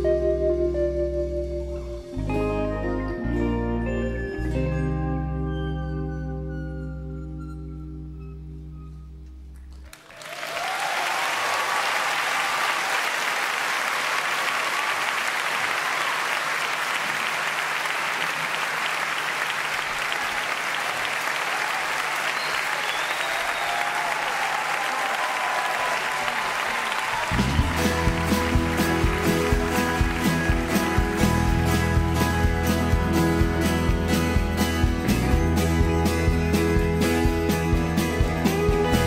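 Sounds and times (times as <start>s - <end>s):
concert audience applauding: 9.6s - 39.0s
crowd cheering and whistling: 9.9s - 32.8s.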